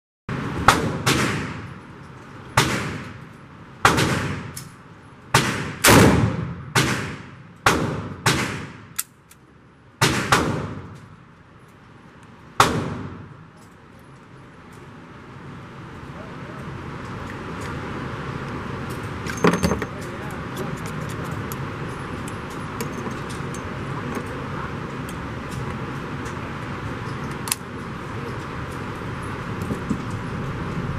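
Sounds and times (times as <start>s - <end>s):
revolver shots echoing indoors: 0.6s - 1.8s, 3.8s - 4.6s, 5.4s - 9.0s, 10.0s - 11.0s.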